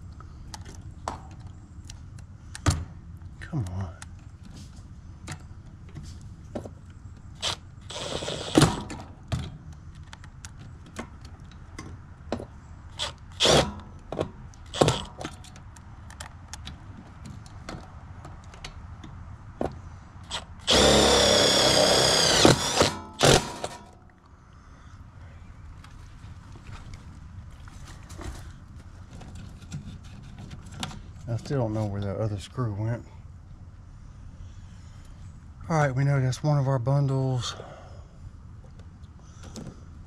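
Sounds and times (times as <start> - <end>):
cordless drill whining: 7.4 - 8.9, 12.9 - 13.7, 14.7 - 15.1, 20.2 - 23.8.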